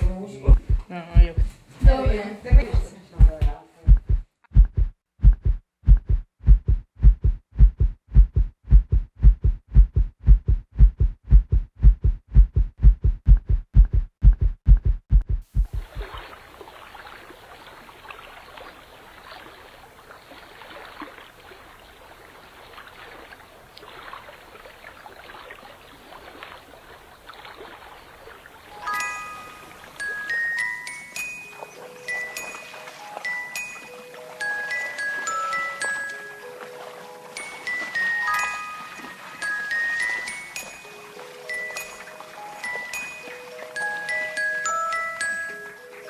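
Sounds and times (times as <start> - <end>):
heartbeat thumps: 0.0 - 16.2.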